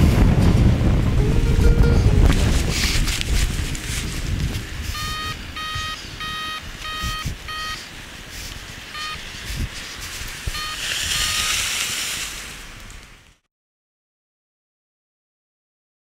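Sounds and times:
rushing hissing noise: 0.0 - 13.4
electronic device beeping: 4.9 - 7.9, 8.9 - 9.2, 10.5 - 11.6.

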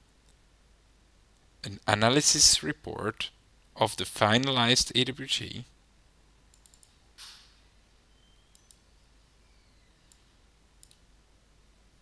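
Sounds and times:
faint computer mouse clicks: 6.5 - 7.4, 8.5 - 8.8, 10.1 - 11.0.

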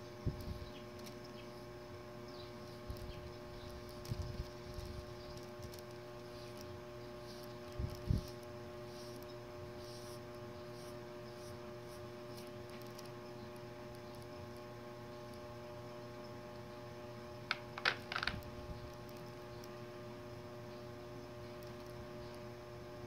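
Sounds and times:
electrical hum: 0.0 - 23.0
small clicks and knocks: 17.5 - 19.7.

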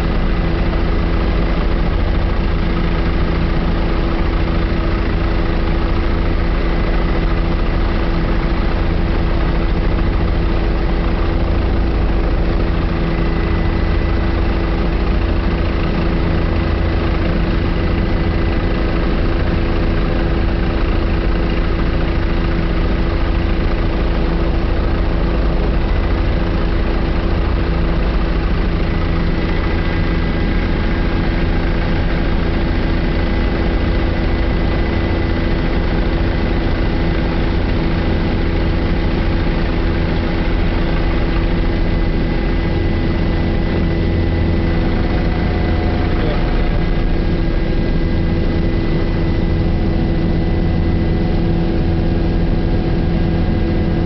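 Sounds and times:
helicopter engine and rotor drone: 0.0 - 54.0
high whine: 39.6 - 54.0.

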